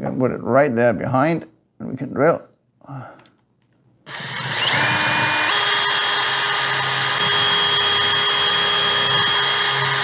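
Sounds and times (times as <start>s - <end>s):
cordless drill drilling wood: 4.1s - 10.0s.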